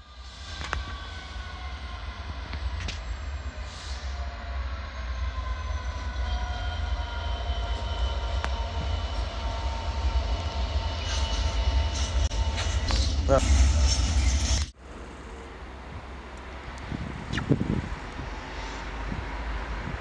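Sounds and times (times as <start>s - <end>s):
train whine and rumble: 0.0s - 20.0s.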